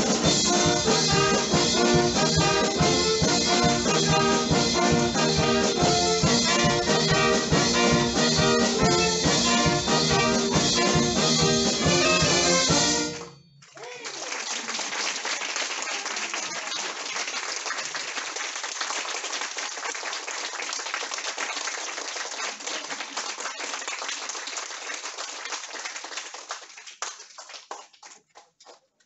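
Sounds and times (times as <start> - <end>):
audience applauding: 13.2 - 29.0.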